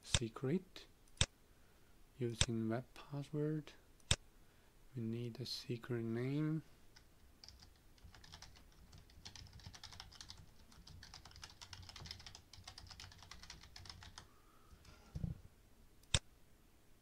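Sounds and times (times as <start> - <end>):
typing on computer keyboard: 7.0 - 14.3.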